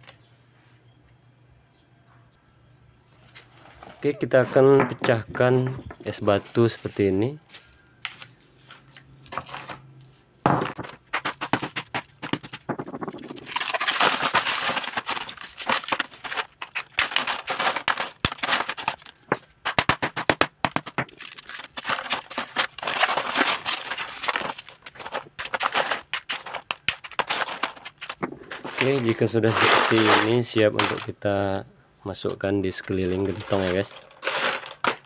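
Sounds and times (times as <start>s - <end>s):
ice cracking and crunching: 10.7s - 31.2s, 32.8s - 35.0s.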